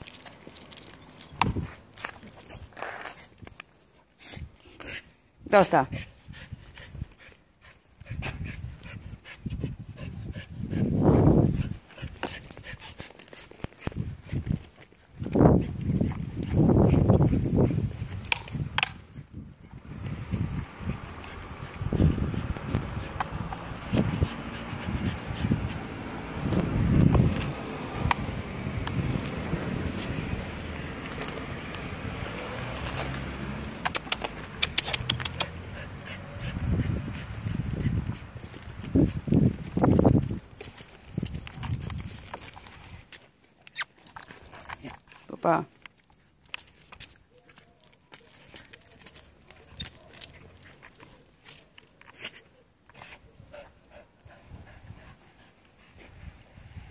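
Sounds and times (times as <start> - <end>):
claws ticking on pavement: 0.0 - 3.8, 11.8 - 52.4
outdoor road rumble: 0.0 - 56.9
microphone handling and wind noise: 1.3 - 2.8, 8.0 - 13.0, 13.6 - 33.9, 36.3 - 43.1, 55.9 - 56.9
sharp clicks: 33.8 - 35.6.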